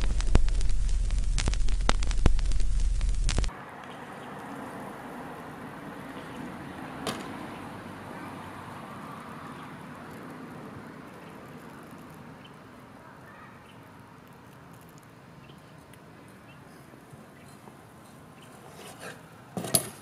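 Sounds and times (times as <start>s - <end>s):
outdoor hiss: 0.0s - 17.5s
bike landing smack on asphalt: 7.0s - 7.4s, 19.6s - 20.0s.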